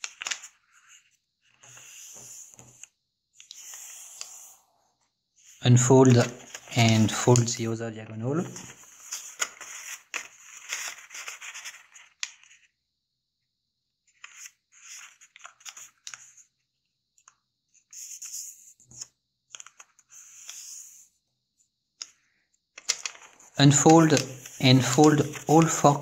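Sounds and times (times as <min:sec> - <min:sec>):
paper rustling as it is folded: 0:06.0 - 0:07.6, 0:08.5 - 0:12.6, 0:22.9 - 0:26.0.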